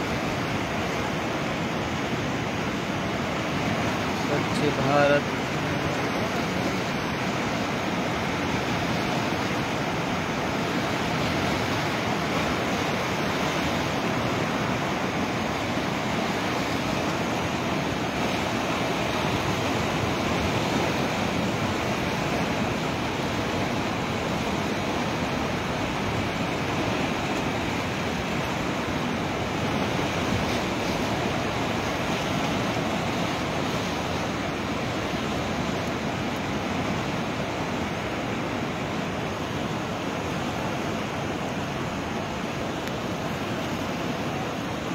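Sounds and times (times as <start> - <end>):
river rushing in flood: 0.0 - 44.9.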